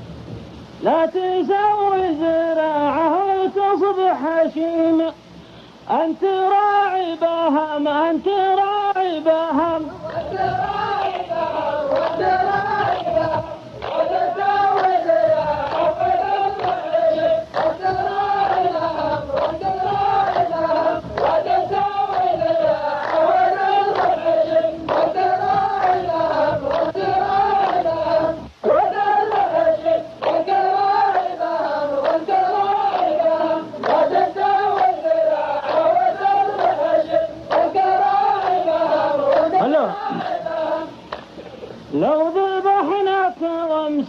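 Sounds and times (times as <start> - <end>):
men chanting in unison: 0.8 - 5.2, 5.9 - 41.2
sharp hand claps: 11.9 - 24.3, 24.9 - 28.0, 30.2 - 31.3, 32.0 - 33.2, 33.8 - 35.0, 35.6 - 36.9, 37.5 - 38.7, 39.3 - 40.4.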